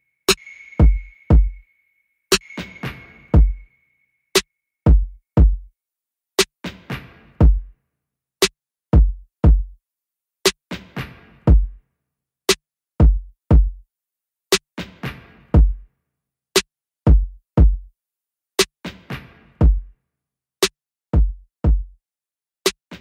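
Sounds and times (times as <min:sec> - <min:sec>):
drum machine beat: 0:00.3 - 0:01.6, 0:02.3 - 0:03.7, 0:04.9 - 0:05.7, 0:06.4 - 0:07.7, 0:08.4 - 0:09.8, 0:10.5 - 0:11.8, 0:13.0 - 0:13.8, 0:14.5 - 0:15.8, 0:16.6 - 0:17.9, 0:18.6 - 0:19.9, 0:21.2 - 0:22.0.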